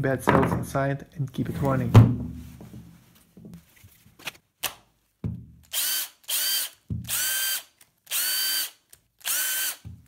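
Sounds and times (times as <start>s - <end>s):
impact driver motor whining: 5.7s - 10.0s.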